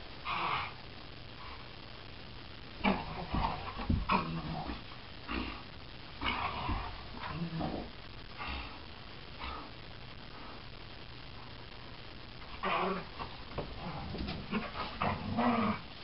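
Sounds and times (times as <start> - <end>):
dogs growling and grunting: 2.8 - 8.7, 12.5 - 15.9.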